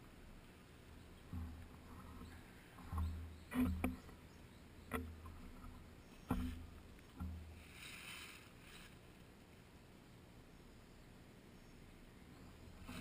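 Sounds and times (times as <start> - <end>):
brief rustle: 7.6 - 9.3.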